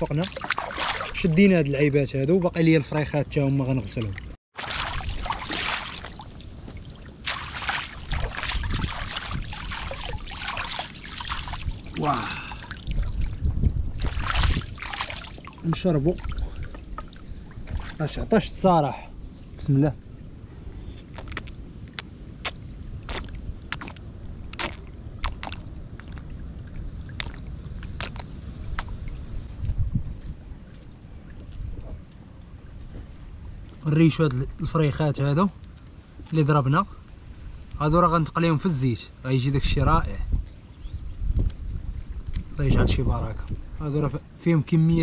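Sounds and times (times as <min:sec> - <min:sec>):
stream water splashing: 0:00.0 - 0:01.6, 0:02.9 - 0:18.6, 0:22.4 - 0:29.6
person slurping water: 0:22.4 - 0:26.3.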